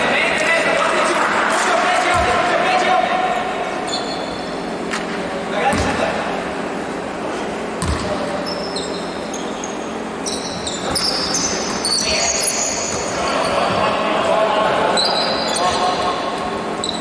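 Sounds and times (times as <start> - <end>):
voices echoing in a hall: 0.0 - 17.0
sneakers squeaking: 3.8 - 14.1, 14.8 - 17.0
basketball bouncing on court: 5.7 - 6.1, 7.8 - 8.3, 12.8 - 13.9.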